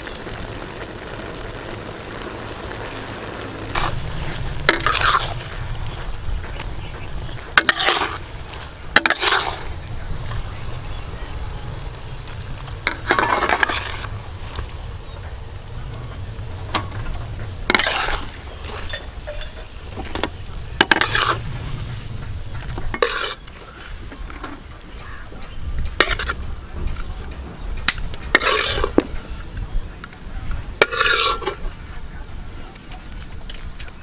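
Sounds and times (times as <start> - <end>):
low rumble: 0.0 - 9.0, 9.6 - 30.8
metal spoon scraping wok: 3.8 - 9.7, 12.9 - 14.2, 16.8 - 24.7, 26.0 - 26.4, 28.3 - 29.4, 30.8 - 31.6
sharp metal clinks: 18.9 - 19.8.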